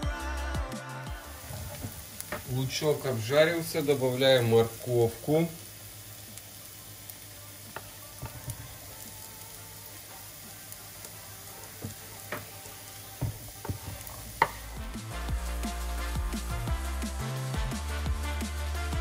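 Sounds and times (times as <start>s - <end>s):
music: 0.0s - 19.0s
onion sizzling in frying pan: 1.0s - 19.0s
taps and knocks on cutting board: 13.2s - 14.6s.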